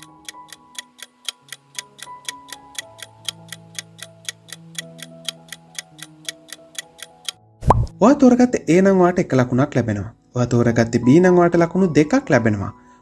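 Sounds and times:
clock ticking: 0:00.0 - 0:07.9
soft background music: 0:00.0 - 0:13.0.

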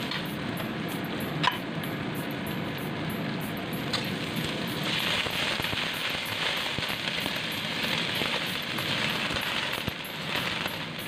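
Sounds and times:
vegetables sizzling in a wok: 0:03.6 - 0:11.0.

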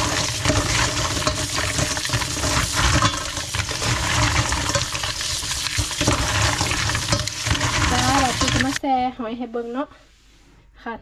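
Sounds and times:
water sloshing: 0:00.0 - 0:08.8.

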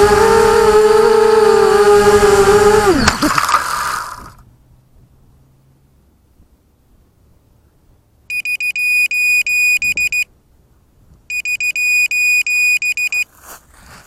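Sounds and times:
electronic buzzer beeping: 0:08.3 - 0:10.3, 0:11.3 - 0:13.2
brief rustle: 0:12.5 - 0:14.0.

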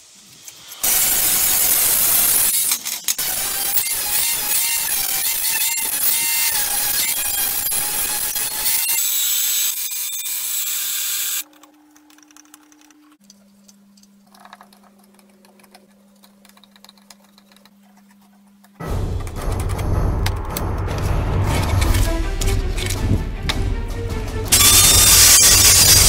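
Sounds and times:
angle grinder grinding steel: 0:00.8 - 0:11.4, 0:24.5 - 0:26.0
drill press humming: 0:24.5 - 0:26.0.

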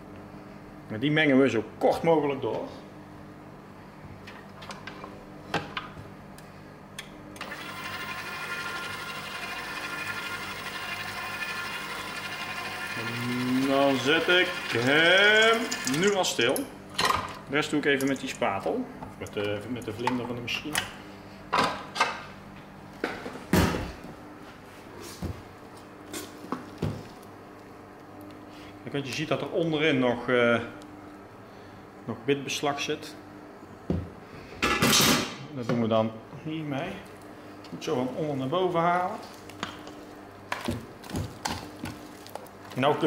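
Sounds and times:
stand mixer running: 0:07.4 - 0:16.4.

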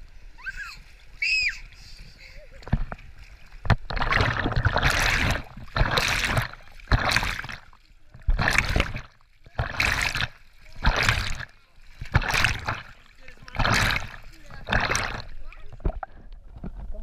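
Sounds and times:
hand splashing river water: 0:02.6 - 0:16.0.

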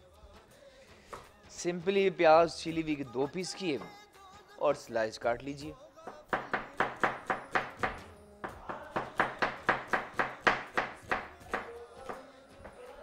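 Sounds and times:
knife chopping onion on board: 0:06.1 - 0:13.0.

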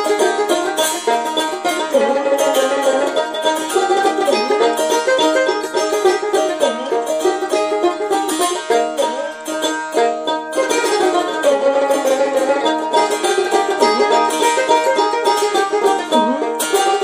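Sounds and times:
plucked string melody: 0:00.0 - 0:17.0
held drone tones: 0:13.5 - 0:17.0.

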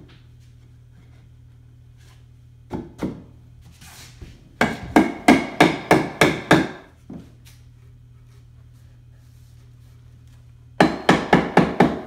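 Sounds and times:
hammer striking wood: 0:04.6 - 0:06.9, 0:10.8 - 0:12.0.

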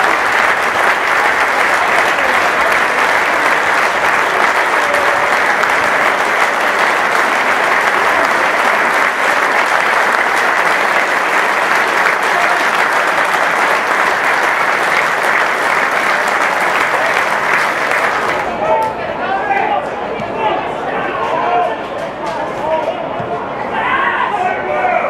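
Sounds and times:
crowd applauding: 0:00.0 - 0:18.6.

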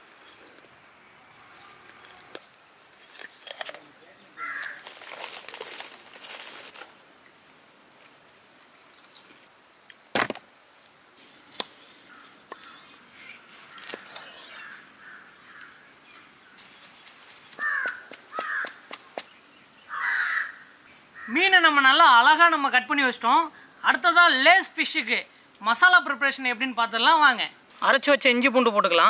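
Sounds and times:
crows cawing: 0:04.4 - 0:05.2, 0:13.7 - 0:16.3, 0:17.6 - 0:19.0, 0:19.9 - 0:21.4
cleaver chopping on wooden stump: 0:16.6 - 0:19.3.

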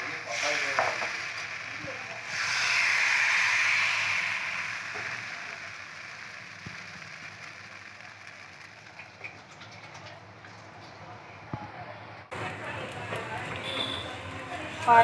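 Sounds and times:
batter sizzling in a pan: 0:00.0 - 0:10.1.

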